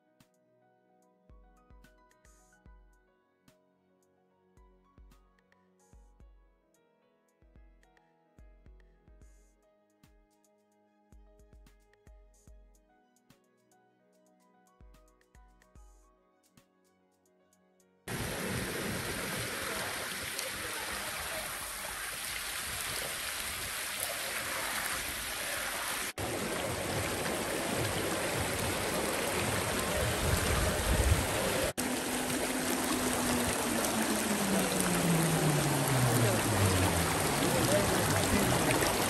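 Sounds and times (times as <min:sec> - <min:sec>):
water rushing over rocks: 0:18.1 - 0:39.0
low hum falling in pitch: 0:28.9 - 0:39.0.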